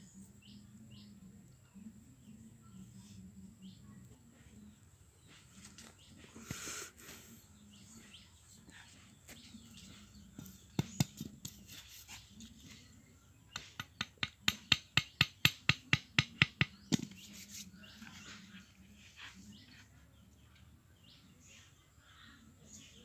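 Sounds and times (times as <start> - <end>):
machete knocking a wooden stake: 10.7 - 11.6, 13.5 - 17.2.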